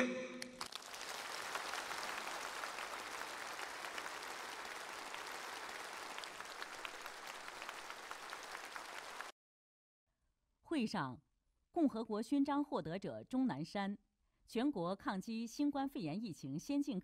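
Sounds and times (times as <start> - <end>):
audience applauding: 0.4 - 9.3.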